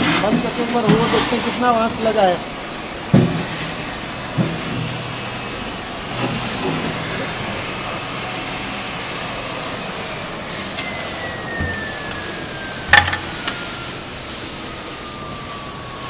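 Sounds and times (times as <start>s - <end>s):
low motor hum: 0.0s - 16.0s
vacuum unit rushing hiss: 0.0s - 16.0s
faint whine falling in pitch: 9.1s - 16.0s.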